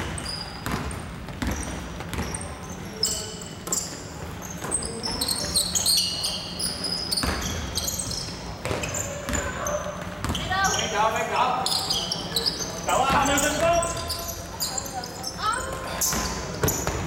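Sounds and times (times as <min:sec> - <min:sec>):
basketball bouncing: 0:00.0 - 0:02.5, 0:07.2 - 0:07.7, 0:08.6 - 0:10.6, 0:15.6 - 0:17.0
sneaker squeaks on floor: 0:00.0 - 0:17.0.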